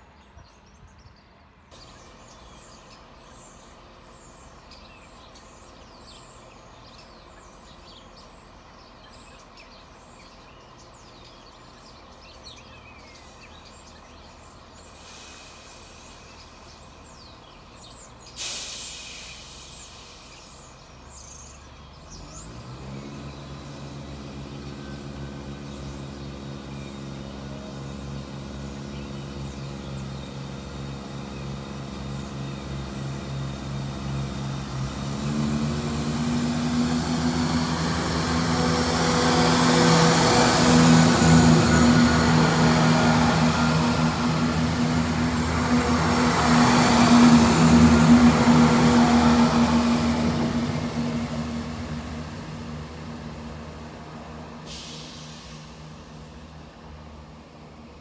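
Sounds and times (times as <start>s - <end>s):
birds chirping: 0.0s - 18.4s, 19.1s - 57.8s
train diesel engine drone: 1.4s - 58.0s
sharp hiss: 14.8s - 16.4s, 18.3s - 20.7s, 54.4s - 56.7s.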